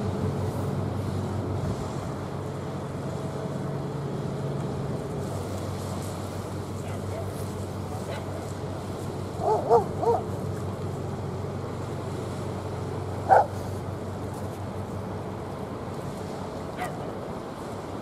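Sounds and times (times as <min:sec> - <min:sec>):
low rumble of ships: 0:00.0 - 0:18.0
wind: 0:00.0 - 0:18.0.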